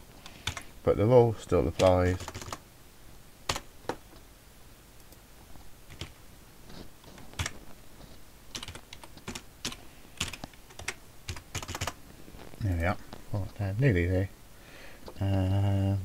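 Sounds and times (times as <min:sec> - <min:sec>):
computer keyboard typing: 0:00.3 - 0:00.7, 0:01.7 - 0:02.6, 0:03.5 - 0:03.7, 0:05.9 - 0:06.2, 0:07.1 - 0:07.6, 0:08.5 - 0:12.0.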